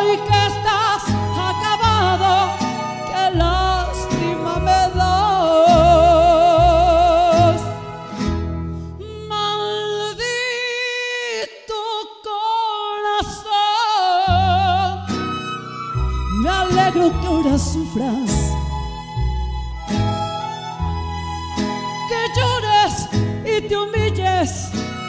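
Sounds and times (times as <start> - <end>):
woman singing with vibrato: 0.0 - 8.3, 9.0 - 15.2, 16.3 - 19.0, 22.0 - 25.0
band with deep bass line: 0.0 - 8.8, 16.0 - 25.0.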